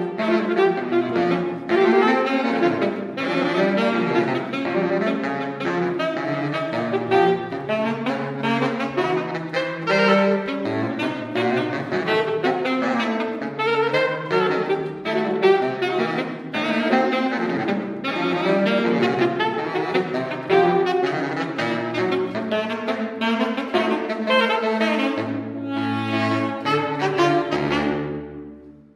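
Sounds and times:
saxophone duo playing tango: 0:00.0 - 0:28.9.

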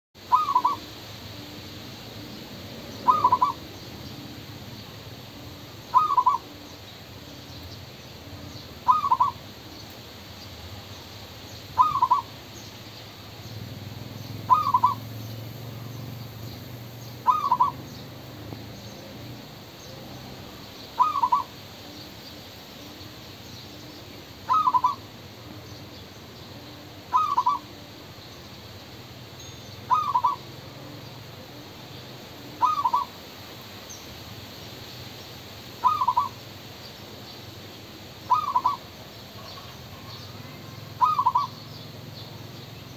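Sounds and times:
dove cooing: 0:00.2 - 0:09.8, 0:11.7 - 0:12.4, 0:14.2 - 0:22.2, 0:22.8 - 0:28.2, 0:29.8 - 0:33.2, 0:35.8 - 0:36.4, 0:38.2 - 0:42.2.

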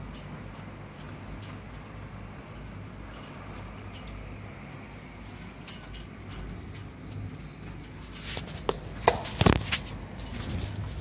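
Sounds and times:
wind buffeting microphone: 0:03.6 - 0:11.0.

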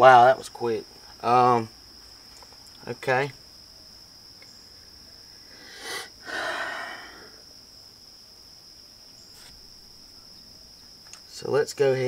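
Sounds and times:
high insect drone: 0:00.0 - 0:12.0
person breathing out: 0:05.5 - 0:07.4.

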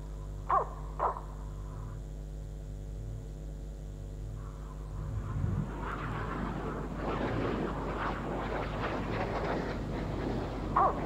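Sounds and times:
steady low hum: 0:00.0 - 0:11.0
jet rushing noise: 0:04.7 - 0:10.0.

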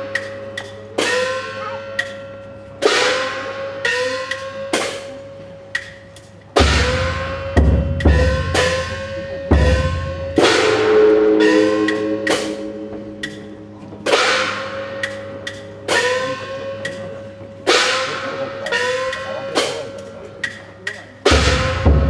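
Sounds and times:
gong strikes ringing: 0:00.0 - 0:05.8, 0:06.6 - 0:22.0
light clacking strikes: 0:00.0 - 0:22.0
low drum thumps: 0:06.6 - 0:12.3.

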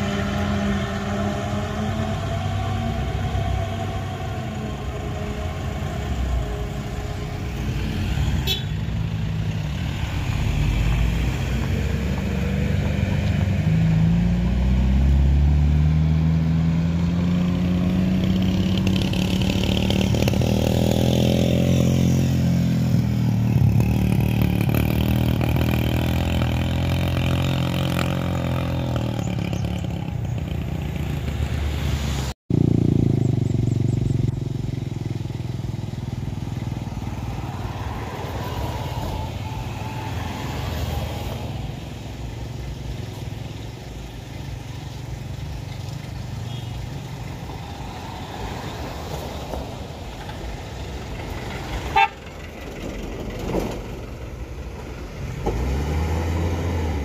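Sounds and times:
car engines climbing hill: 0:00.0 - 0:57.0
car passing close by: 0:31.0 - 0:32.4, 0:36.3 - 0:42.4, 0:47.2 - 0:52.1.

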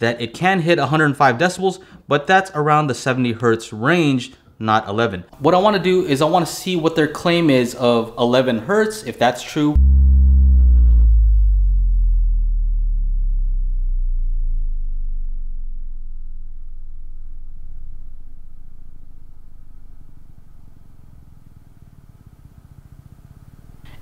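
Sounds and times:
deep falling test tone: 0:09.7 - 0:22.2.

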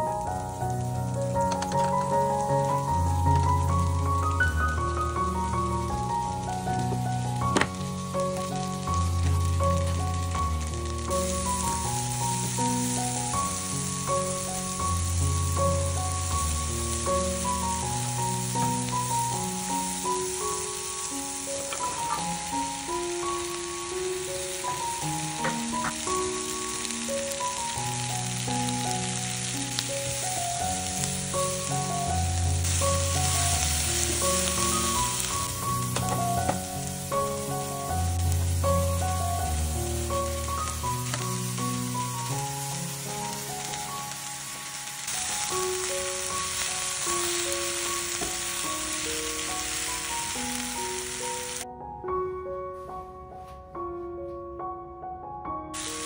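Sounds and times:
vegetables sizzling in a frying pan: 0:00.0 - 0:51.6, 0:55.8 - 0:56.0
background music: 0:00.0 - 0:56.0.

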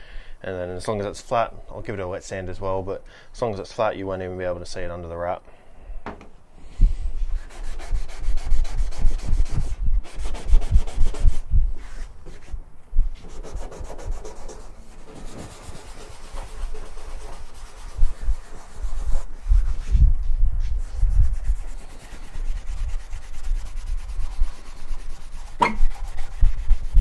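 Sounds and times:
scuff pad rubbing painted metal: 0:06.7 - 0:12.6, 0:13.2 - 0:27.0.

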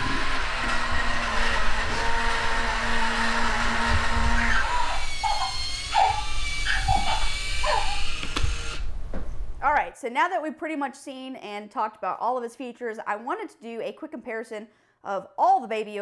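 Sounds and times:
toy motor whirring: 0:00.0 - 0:08.8.

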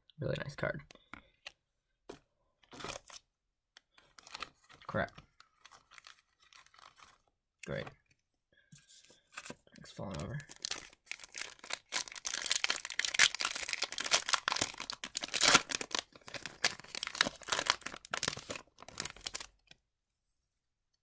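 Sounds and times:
card pack wrapper tearing and crinkling: 0:02.7 - 0:03.2, 0:04.1 - 0:05.0, 0:05.6 - 0:07.2, 0:09.4 - 0:19.7.

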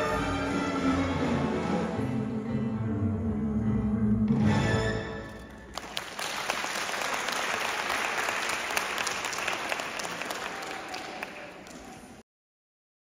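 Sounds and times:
audience applause: 0:05.7 - 0:12.2.

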